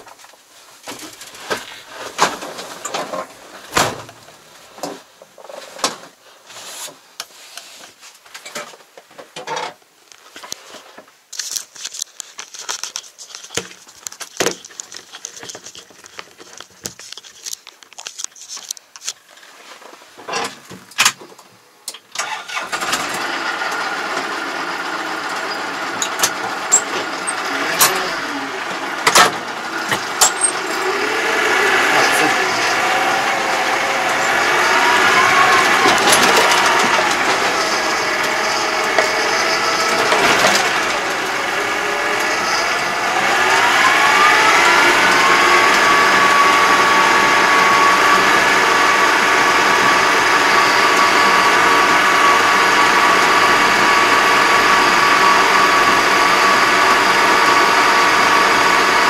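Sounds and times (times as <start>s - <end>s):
tractor diesel engine running: 22.1s - 59.0s.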